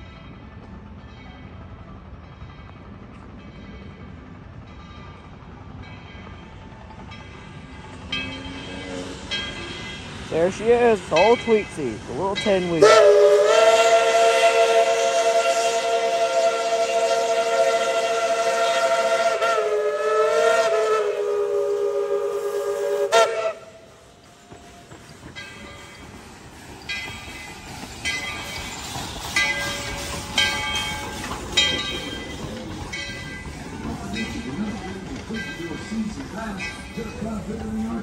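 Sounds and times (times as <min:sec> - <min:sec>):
locomotive bell ringing: 0:00.0 - 0:13.2, 0:24.4 - 0:38.0
steam whistle chord: 0:12.8 - 0:23.8.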